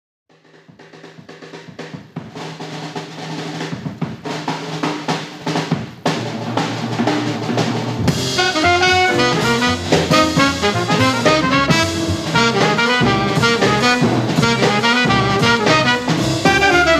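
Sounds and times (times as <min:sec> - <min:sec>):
snare drum roll: 0:00.3 - 0:16.9
trumpet and saxophone melody: 0:08.1 - 0:16.9.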